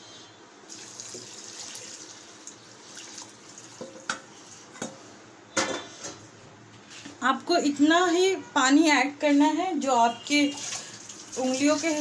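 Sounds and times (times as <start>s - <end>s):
water pouring and splashing: 0.7s - 4.0s, 10.5s - 12.0s.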